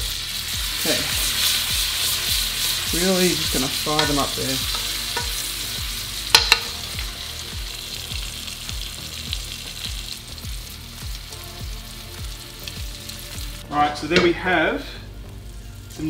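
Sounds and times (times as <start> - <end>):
food sizzling in a pan: 0.0 - 16.0
utensil clicking against pan: 4.0 - 5.4, 6.3 - 6.8.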